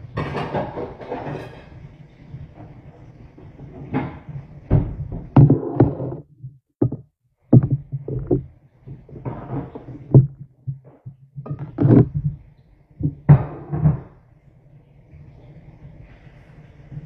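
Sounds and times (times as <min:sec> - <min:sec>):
plastic containers knocking: 0:04.7 - 0:12.4
rustling scrapes: 0:05.4 - 0:07.0, 0:07.6 - 0:13.3.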